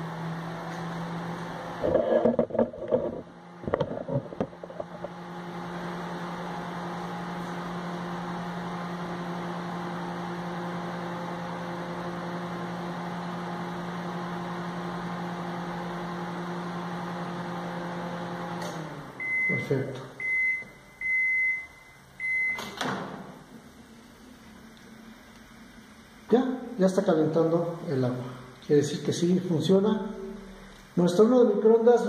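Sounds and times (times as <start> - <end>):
cooling fan rushing: 0.0 - 19.5
microwave oven humming: 0.0 - 32.0.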